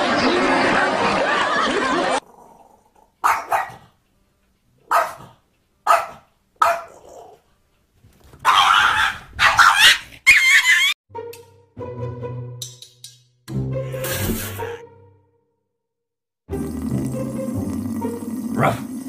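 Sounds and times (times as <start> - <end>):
small dog yipping and barking: 3.2 - 3.8, 4.9 - 5.3, 5.9 - 6.9, 8.4 - 10.9.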